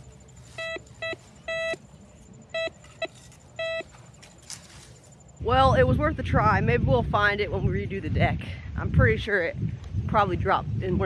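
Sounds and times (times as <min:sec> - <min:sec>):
metal detector beeping: 0:00.0 - 0:05.9.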